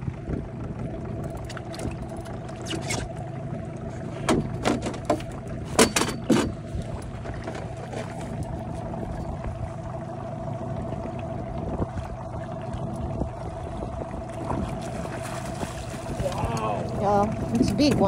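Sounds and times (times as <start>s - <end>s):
outboard motor idling: 0.0s - 18.0s.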